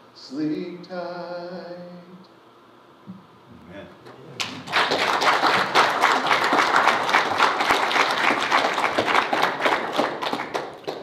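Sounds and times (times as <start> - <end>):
congregation applauding: 4.4 - 11.0.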